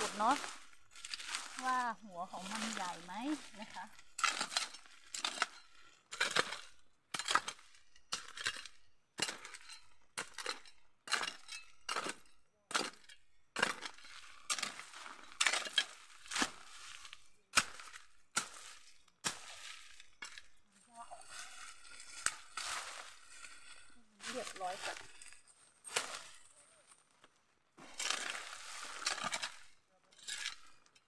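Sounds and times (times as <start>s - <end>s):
hoe chopping into soil: 10.2s - 20.5s, 25.9s - 26.4s, 27.8s - 29.7s.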